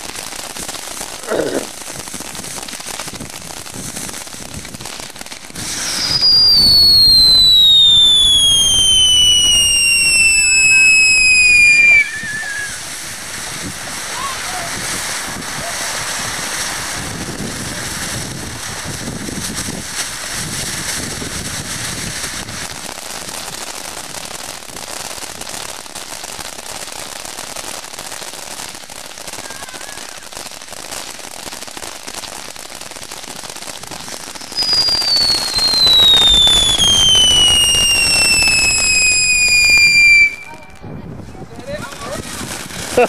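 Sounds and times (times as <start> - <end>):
firework hissing and crackling: 0.0 - 43.0
falling whistle: 5.8 - 12.9, 34.6 - 40.6.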